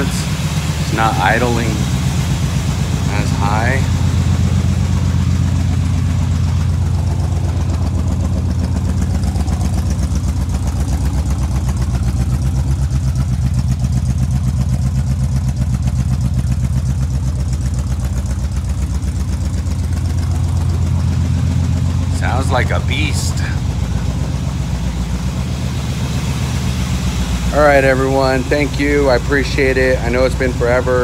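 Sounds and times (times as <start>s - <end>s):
car engine idling: 0.0s - 31.0s.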